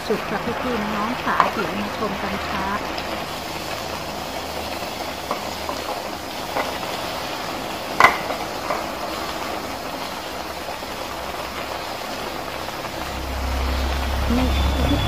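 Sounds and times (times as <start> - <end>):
food sizzling in a wok: 0.0 - 15.0
spatula clacking against pan: 5.2 - 7.0, 7.9 - 9.3.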